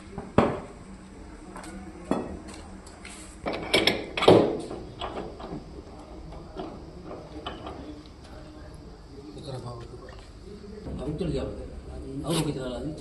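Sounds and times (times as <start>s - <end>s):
metal tools clanking on metal: 3.5s - 4.4s.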